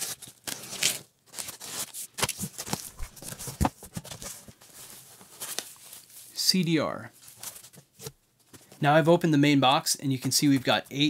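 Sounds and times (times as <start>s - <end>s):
packing tape pulled: 0.0s - 3.2s
packing foam handled: 0.0s - 6.1s
cardboard flaps rustling: 2.2s - 6.0s.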